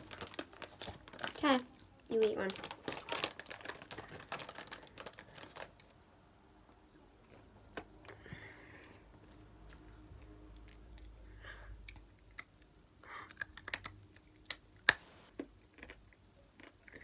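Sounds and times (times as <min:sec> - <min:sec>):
crunchy snack being chewed: 0:11.8 - 0:17.0.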